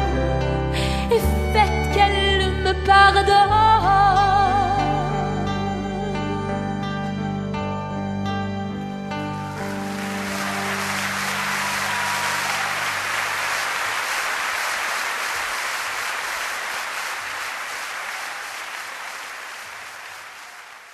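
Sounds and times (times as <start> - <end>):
live music low notes: 0.0 - 12.8
audience applauding: 9.4 - 20.9.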